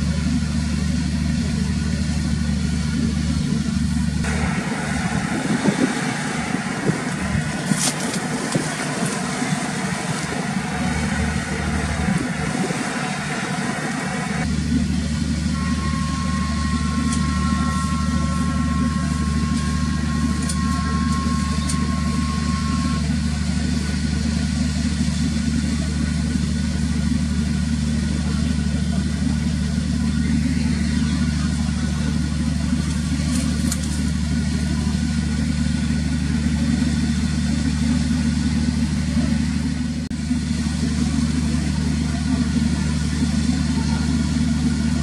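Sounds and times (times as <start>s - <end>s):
ferry engines droning: 0.0s - 45.0s
thin steady whine: 0.0s - 45.0s
rushing water and wind: 4.3s - 14.4s.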